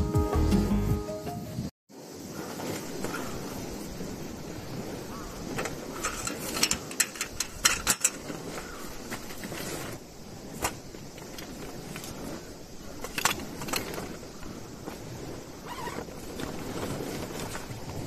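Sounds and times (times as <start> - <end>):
cloth bag rustling: 8.1 - 18.0.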